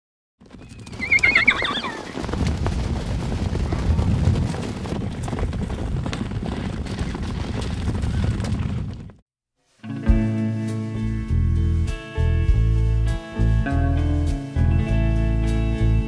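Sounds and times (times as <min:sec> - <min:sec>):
galloping hoofbeats rumble: 0:00.4 - 0:09.2
horse whinnying: 0:00.6 - 0:02.2.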